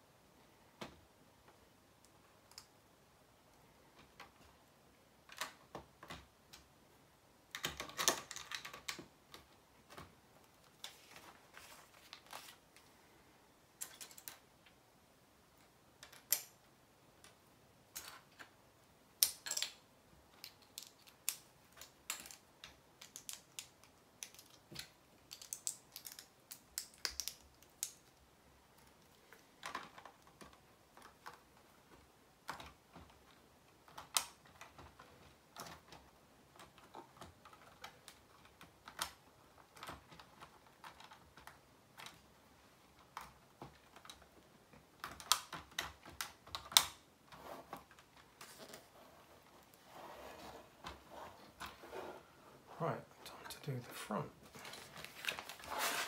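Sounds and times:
plastic bricks clicking: 0:07.5 - 0:10.0, 0:19.2 - 0:28.2.

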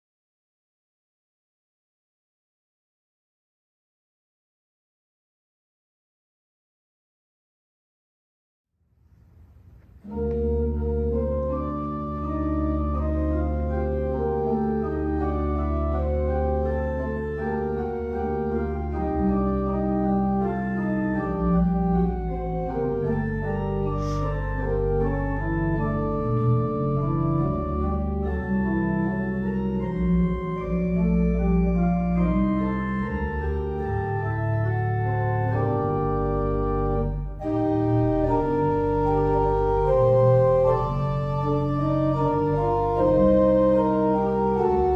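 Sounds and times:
organ playing slow chords: 0:10.0 - 0:44.9.

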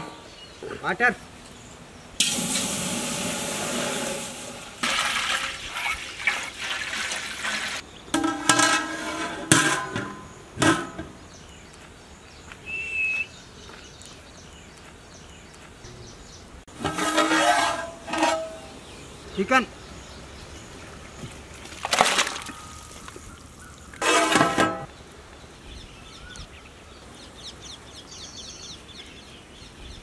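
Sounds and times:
water pouring into metal pot: 0:02.2 - 0:07.8
metal lid clattering: 0:08.2 - 0:11.2, 0:16.7 - 0:18.8, 0:24.0 - 0:24.9.

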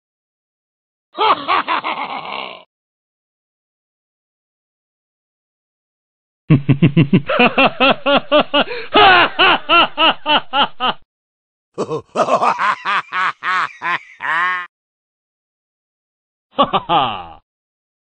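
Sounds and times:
person laughing: 0:01.2 - 0:02.7, 0:06.5 - 0:11.0, 0:11.8 - 0:14.7, 0:16.6 - 0:17.4
rhythmic laughter: 0:11.8 - 0:14.7.

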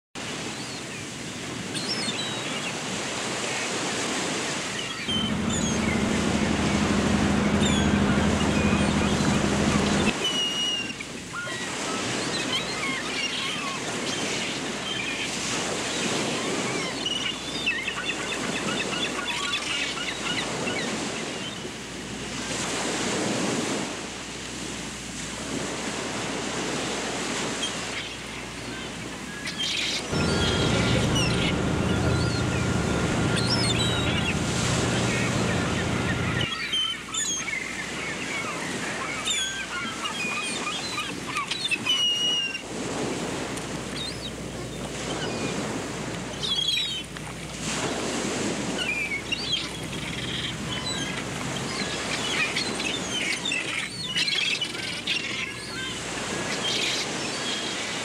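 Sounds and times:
sea waves washing: 0:02.8 - 0:13.0, 0:20.4 - 0:37.0, 0:42.6 - 0:58.0
low steady hum: 0:05.1 - 0:10.2, 0:30.1 - 0:36.5
bird chirps: 0:05.1 - 0:10.9, 0:30.0 - 0:36.8.

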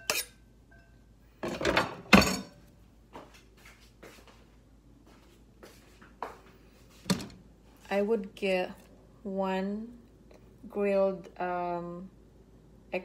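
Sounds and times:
kitchenware clattering: 0:00.0 - 0:02.7.

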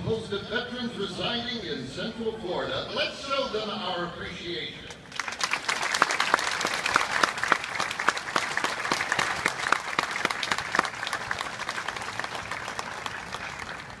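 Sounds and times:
crowd applauding: 0:05.1 - 0:14.0.

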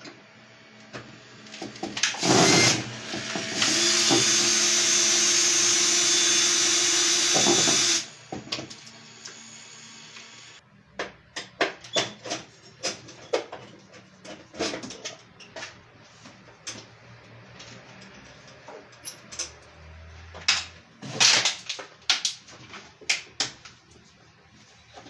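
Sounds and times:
tools clicking and knocking on plastic: 0:10.9 - 0:15.8, 0:20.3 - 0:23.8.

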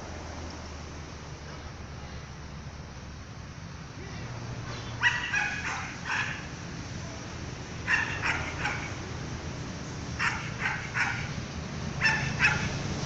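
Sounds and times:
dog barking: 0:05.0 - 0:06.5, 0:07.9 - 0:09.0, 0:10.2 - 0:11.4, 0:12.0 - 0:12.8.

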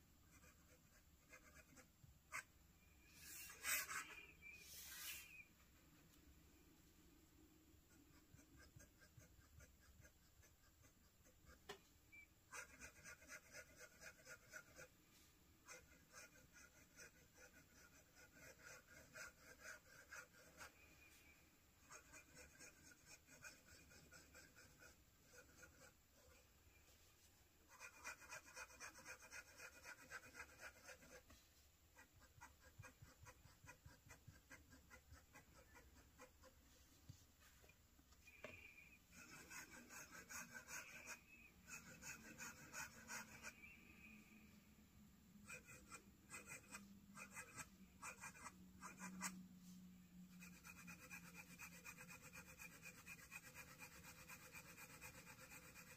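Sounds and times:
pen nib scratching on paper: 0:00.3 - 0:02.5, 0:07.9 - 0:14.9, 0:15.6 - 0:20.8, 0:21.8 - 0:26.4, 0:27.7 - 0:31.4, 0:32.0 - 0:36.7, 0:38.3 - 0:43.8, 0:45.4 - 0:49.4, 0:50.3 - 0:55.9.

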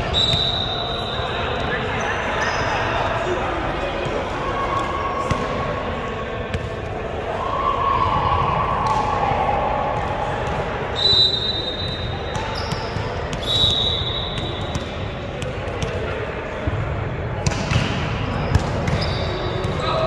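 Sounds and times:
murmur of voices: 0:00.0 - 0:20.0
volleyball hits and thumps: 0:17.4 - 0:19.9.

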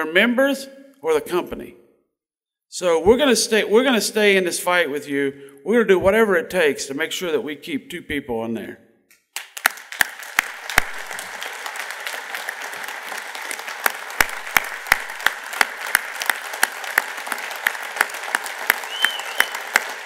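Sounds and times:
sharp close claps: 0:09.1 - 0:20.0
audience applause: 0:09.4 - 0:20.0.

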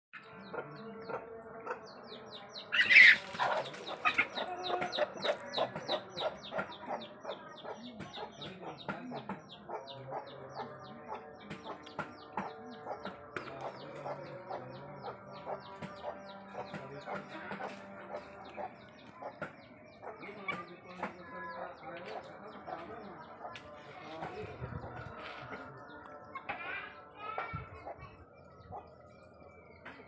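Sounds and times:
chickens clucking: 0:00.2 - 0:30.0.

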